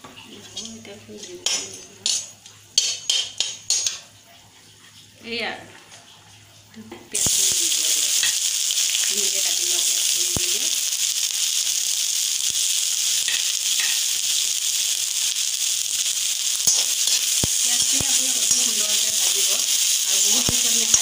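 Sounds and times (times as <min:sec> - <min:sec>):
onions sizzling in hot oil: 0:00.1 - 0:04.2, 0:06.7 - 0:21.0
metal spatula clicking on pan: 0:01.4 - 0:04.0, 0:13.3 - 0:14.0, 0:16.6 - 0:21.0.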